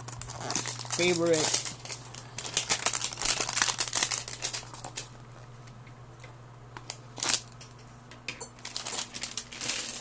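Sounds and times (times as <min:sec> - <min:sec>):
packaging and cards rustling: 0:00.0 - 0:05.2, 0:06.9 - 0:07.6, 0:08.6 - 0:10.0.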